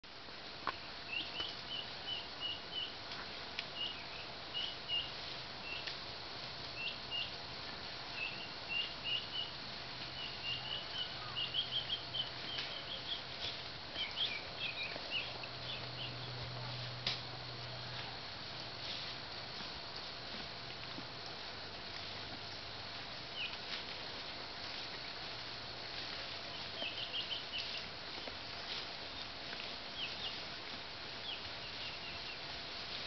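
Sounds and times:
small birds chirping: 0:00.7 - 0:06.0, 0:06.6 - 0:07.5, 0:08.1 - 0:17.0, 0:22.0 - 0:33.0.

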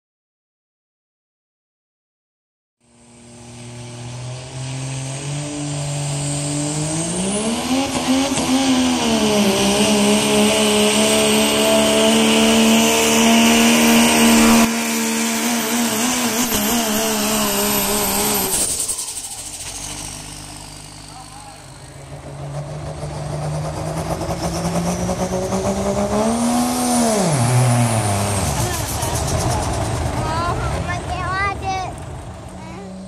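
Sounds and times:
diesel truck engine at full throttle: 0:02.8 - 0:33.0
high turbo whistle: 0:02.9 - 0:22.1.

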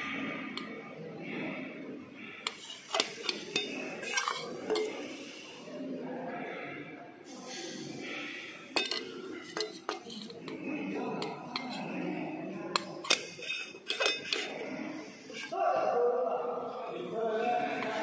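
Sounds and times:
metal tins clinking: 0:02.5 - 0:05.0, 0:08.8 - 0:10.6, 0:12.7 - 0:14.6.

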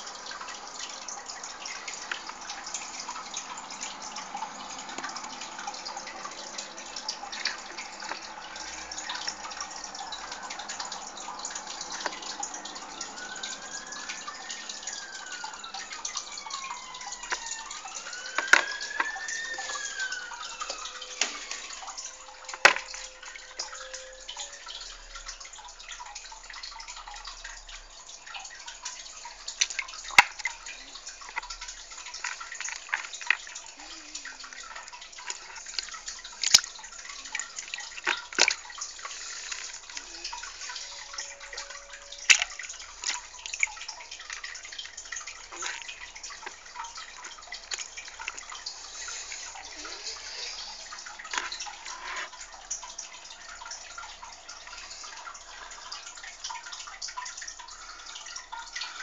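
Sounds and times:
water trickling and dripping: 0:00.0 - 0:59.0.

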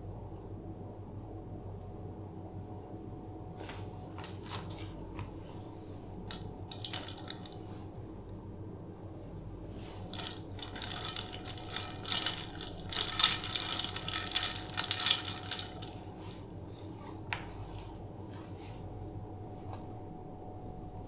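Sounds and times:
ice cubes clinking on metal bowl: 0:06.3 - 0:07.6, 0:10.0 - 0:16.0
water sloshing in a bowl: 0:09.8 - 0:16.5.

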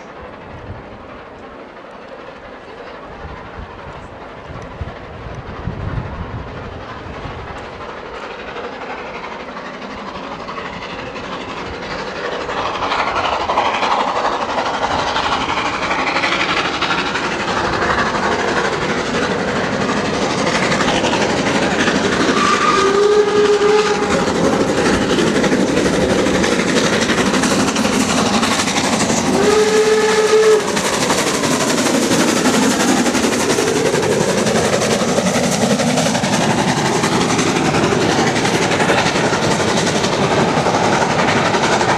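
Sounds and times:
steam train running: 0:00.0 - 0:41.9
steam whistle blasts: 0:22.3 - 0:24.2, 0:29.2 - 0:31.0.

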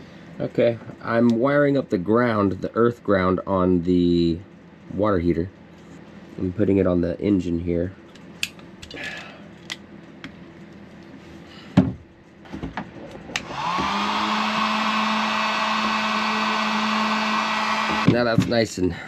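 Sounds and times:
heat gun blowing: 0:13.4 - 0:18.1.

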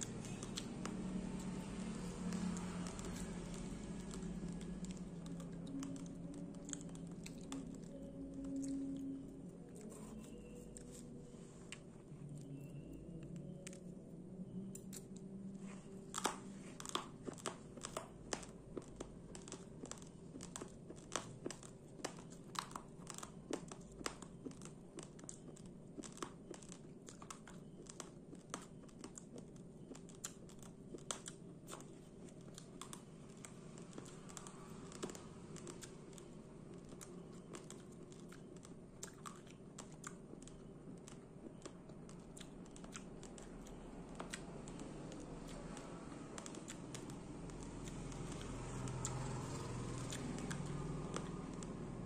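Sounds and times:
chewing uncooked rice crunching: 0:00.0 - 0:52.0.

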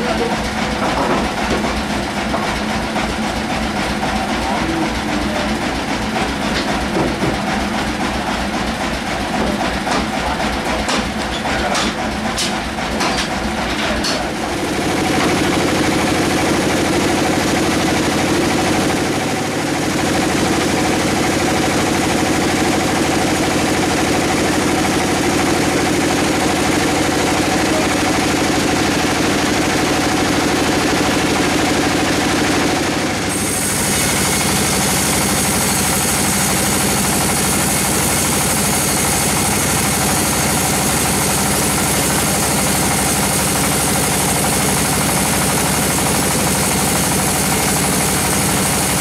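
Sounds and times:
sawmill bandsaw machinery running: 0:00.0 - 0:49.0
sharp knocks: 0:06.5 - 0:07.5.

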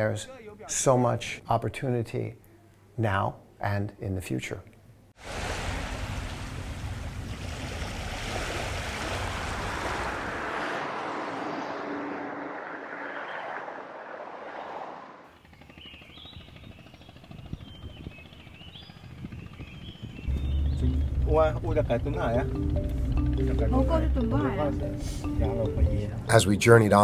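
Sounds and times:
traffic noise from passing cars: 0:05.8 - 0:15.3.

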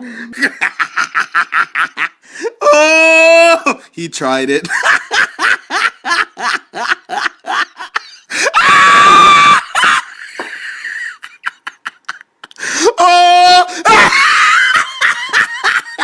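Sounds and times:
person laughing: 0:00.3 - 0:02.2, 0:09.2 - 0:16.0
person screaming: 0:02.5 - 0:03.8, 0:08.4 - 0:10.0, 0:12.7 - 0:14.6.

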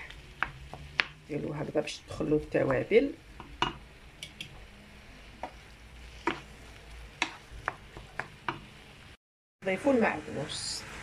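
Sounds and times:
faint frying sizzle: 0:00.0 - 0:11.0
wooden spoon scraping a pan: 0:05.3 - 0:08.8.

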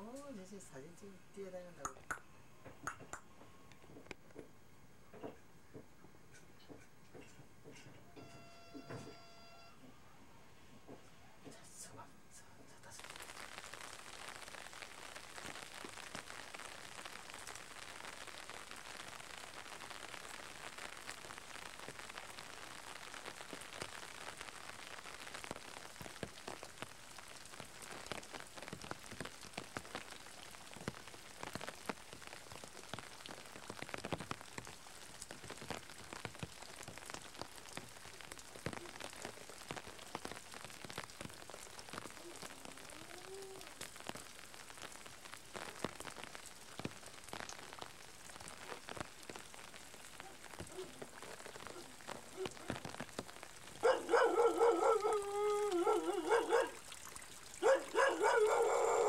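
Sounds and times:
steady rain hiss: 0:00.0 - 0:59.0
drops ticking: 0:01.8 - 0:03.3.

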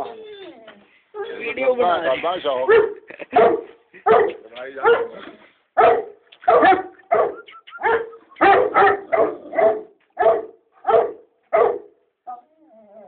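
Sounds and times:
dog barking: 0:02.7 - 0:05.2, 0:05.8 - 0:12.0.

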